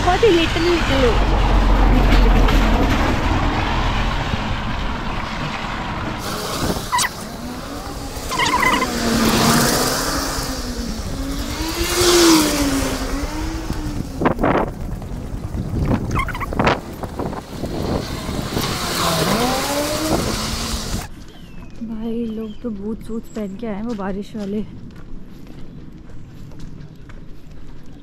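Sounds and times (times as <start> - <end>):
car tyres hissing on wet road: 5.5 - 8.3, 8.9 - 13.4, 17.5 - 21.1.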